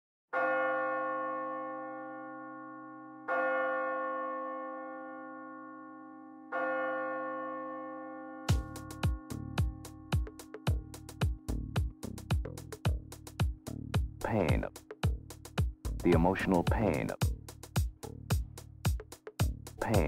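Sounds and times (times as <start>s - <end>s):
bell tolling: 0.4s - 13.7s
electronic beat with deep drums: 8.5s - 20.0s.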